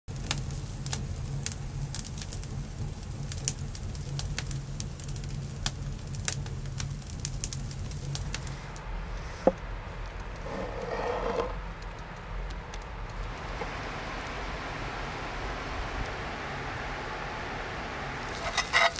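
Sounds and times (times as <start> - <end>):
campfire crackling and popping: 0.1 - 8.8, 18.3 - 18.9
low steady rumble: 0.1 - 18.9.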